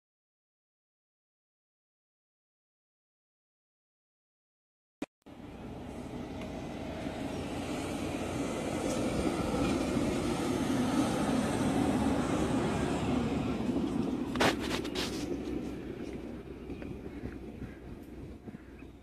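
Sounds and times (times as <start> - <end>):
engine-like rumble: 5.3 - 19.0.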